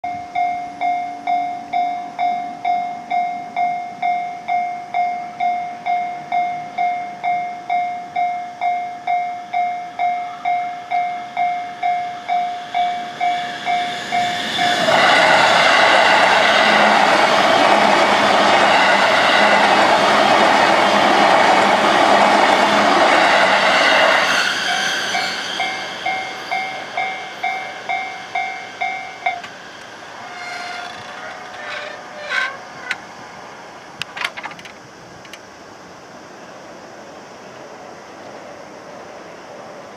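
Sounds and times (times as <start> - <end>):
train wheels rushing on rails: 8.7 - 35.4.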